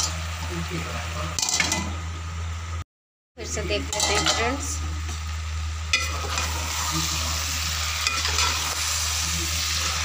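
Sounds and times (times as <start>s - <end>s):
curry sizzling in a pot: 3.5s - 10.0s
ladle scraping pot: 7.9s - 8.8s.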